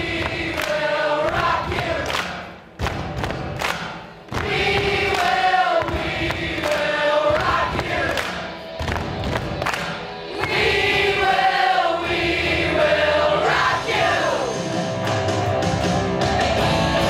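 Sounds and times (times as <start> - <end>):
girls singing in unison: 0.0 - 2.2, 4.3 - 8.2, 10.3 - 14.6
steady percussive beat: 0.0 - 12.9.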